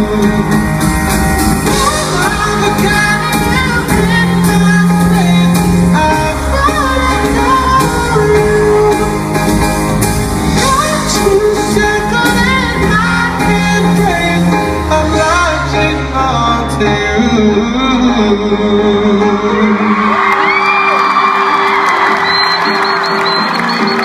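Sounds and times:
man singing long notes: 0:00.0 - 0:01.0, 0:13.0 - 0:20.2
live pop ballad by band: 0:00.0 - 0:24.0.

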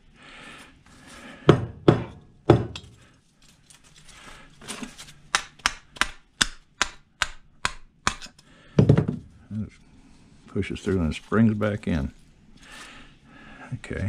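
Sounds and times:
hammer striking metal: 0:01.5 - 0:02.9.

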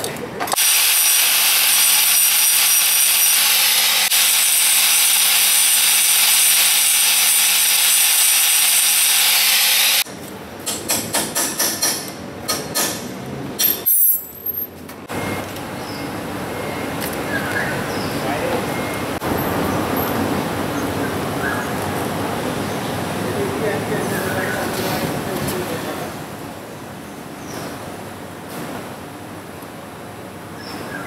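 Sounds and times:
angle grinder grinding metal: 0:00.6 - 0:10.1.

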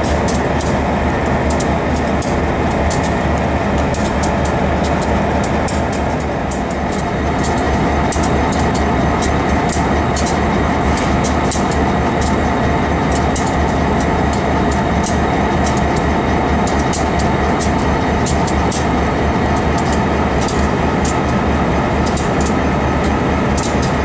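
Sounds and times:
diesel locomotives idling: 0:00.0 - 0:24.0
sharp ticks: 0:03.8 - 0:12.4, 0:13.1 - 0:19.0, 0:19.6 - 0:21.4.

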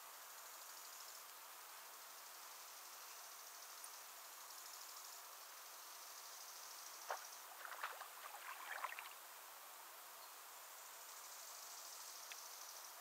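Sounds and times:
small splashes and drips: 0:07.1 - 0:09.2
water splashing: 0:07.1 - 0:09.2.

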